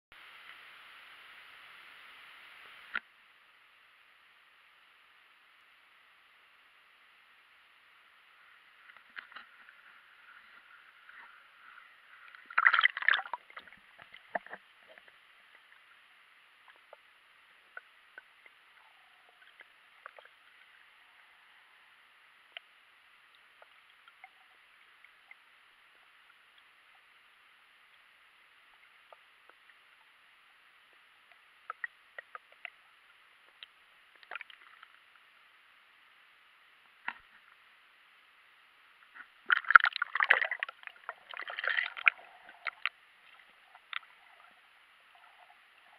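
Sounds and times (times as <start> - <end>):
muffled underwater hiss: 0.2 - 45.9
small clicks underwater: 2.8 - 3.1, 8.8 - 15.9, 16.6 - 20.7, 30.9 - 35.3, 37.0 - 37.6, 39.1 - 45.9
water splash and gurgle: 8.8 - 20.8, 39.2 - 45.9.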